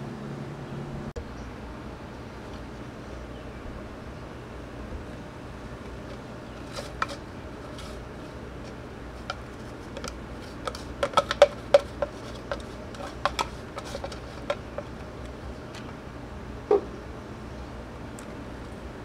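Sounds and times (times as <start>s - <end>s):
brush scraping plastic dust cup: 6.1s - 15.2s
sharp clicks and knocks: 9.2s - 16.0s.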